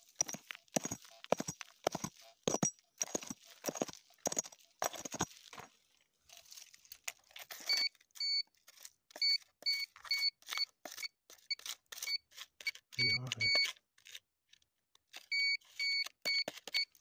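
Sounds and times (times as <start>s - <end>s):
soil and stones scraping: 0.0s - 9.2s
metal detector high beeps: 12.0s - 13.7s.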